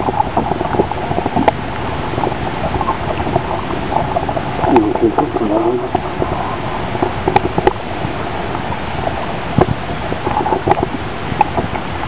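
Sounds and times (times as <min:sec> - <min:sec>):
water lapping against boat: 0:00.0 - 0:12.0
wind on microphone: 0:00.0 - 0:12.0.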